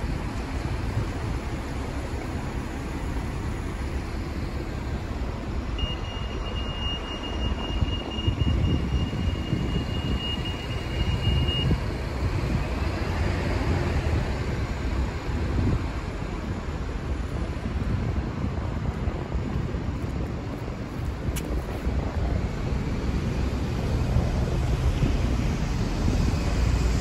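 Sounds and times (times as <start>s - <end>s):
city traffic rumble: 0.0s - 27.0s
wind on microphone: 7.4s - 27.0s.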